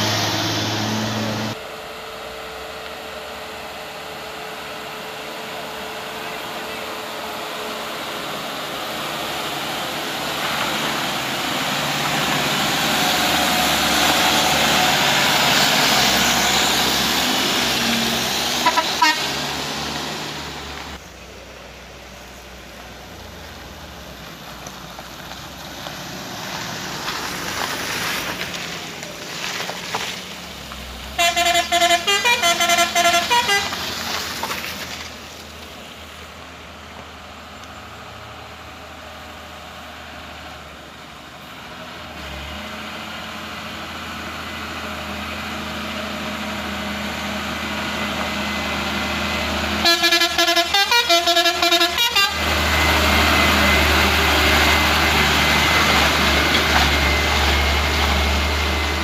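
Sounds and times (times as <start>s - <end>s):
truck diesel engine labouring: 0.0s - 59.0s
multi-tone vehicle horn: 18.5s - 19.5s, 31.2s - 33.8s, 49.8s - 52.5s.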